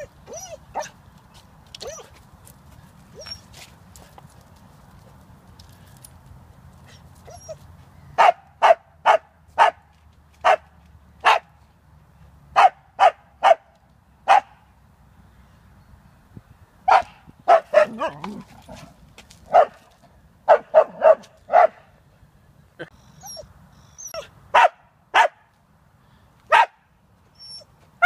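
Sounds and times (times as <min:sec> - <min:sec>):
dog barking: 0:08.2 - 0:09.8, 0:10.4 - 0:11.5, 0:12.6 - 0:13.7, 0:14.3 - 0:14.5, 0:16.9 - 0:18.2, 0:19.5 - 0:19.8, 0:20.5 - 0:21.8, 0:24.6 - 0:25.4, 0:26.5 - 0:26.8.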